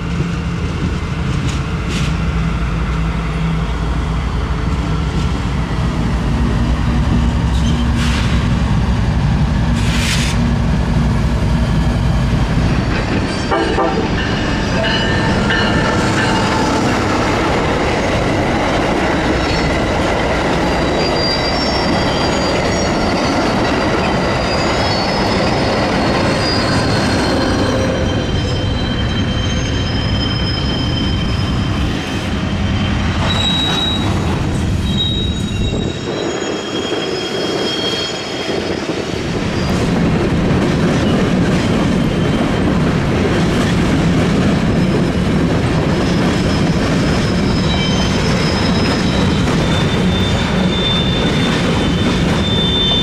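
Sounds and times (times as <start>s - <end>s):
train wheels rumbling on rail: 0.0s - 53.0s
wheel squeals: 20.7s - 31.9s, 33.2s - 34.2s, 34.8s - 38.9s, 46.1s - 53.0s.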